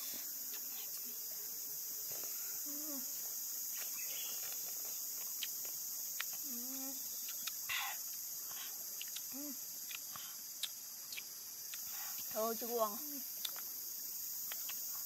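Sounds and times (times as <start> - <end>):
insects droning: 0.0 - 15.0
mouth clicks from chewing: 7.2 - 7.6, 9.0 - 11.9, 14.4 - 14.9
breath hiss: 7.6 - 10.6, 11.7 - 12.4.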